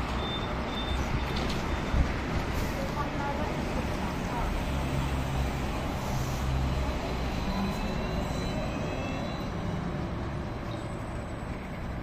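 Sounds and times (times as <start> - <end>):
street traffic: 0.0 - 12.0.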